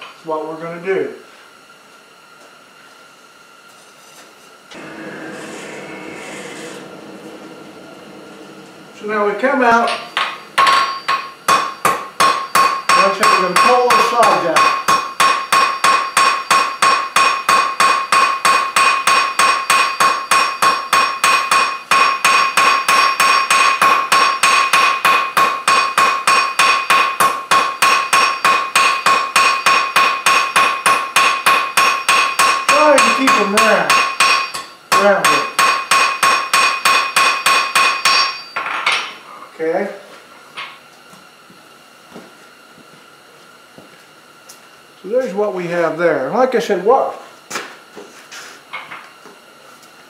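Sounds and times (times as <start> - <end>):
hammer striking hot steel on anvil: 9.8 - 39.2.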